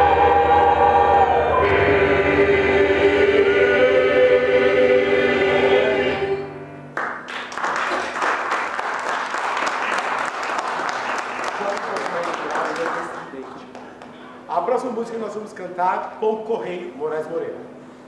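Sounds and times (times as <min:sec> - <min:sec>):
mixed choir singing: 0:00.0 - 0:06.7
audience applause: 0:07.0 - 0:14.1.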